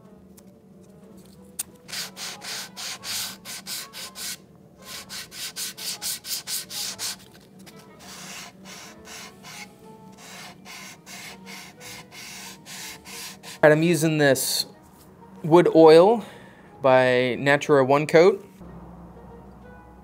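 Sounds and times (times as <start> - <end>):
sandpaper rubbing on wood: 1.9 - 7.3, 8.0 - 13.7.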